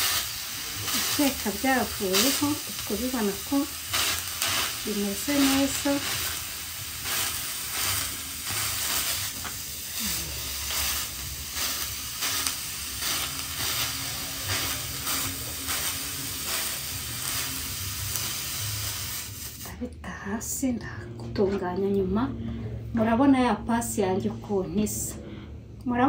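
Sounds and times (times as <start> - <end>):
steady hiss: 0.0 - 19.7.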